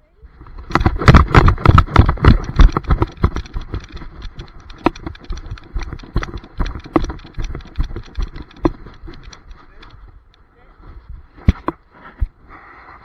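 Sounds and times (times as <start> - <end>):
dog paws striking lawn: 0.4 - 10.0.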